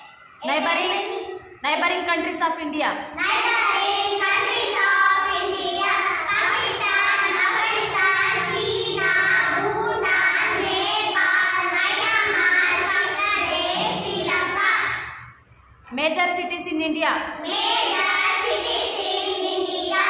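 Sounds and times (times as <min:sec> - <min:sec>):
girls singing in unison: 0:03.2 - 0:15.3, 0:17.4 - 0:20.0.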